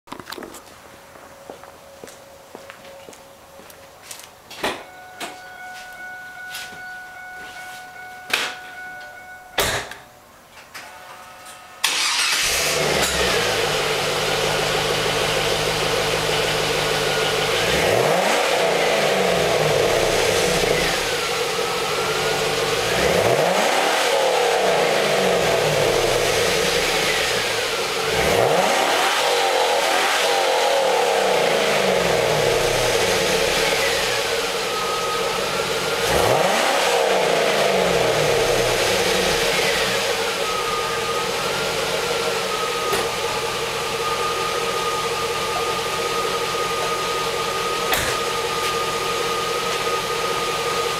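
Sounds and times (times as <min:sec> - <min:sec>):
car engine starting and idling: 0:04.6 - 0:50.9
engine revving: 0:11.8 - 0:50.9.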